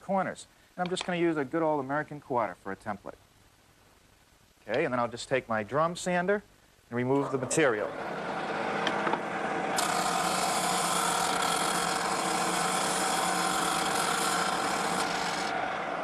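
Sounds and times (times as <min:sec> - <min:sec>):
drum sander motor hum: 0:07.9 - 0:16.0
wood sanding hiss: 0:09.8 - 0:15.5.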